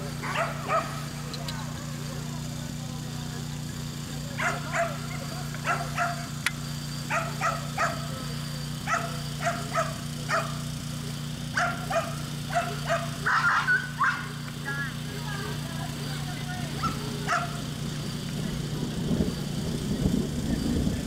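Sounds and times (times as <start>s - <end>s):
dog barking: 0.2s - 1.1s, 4.4s - 6.3s, 7.1s - 8.2s, 8.8s - 10.6s, 11.5s - 14.4s, 16.8s - 17.6s.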